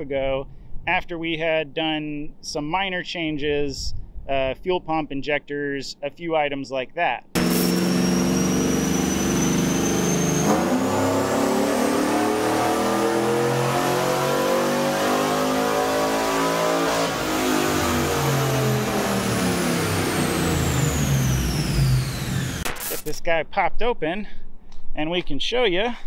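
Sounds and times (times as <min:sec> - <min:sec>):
car engine revving up: 0:07.4 - 0:23.0
high whine: 0:07.4 - 0:23.2.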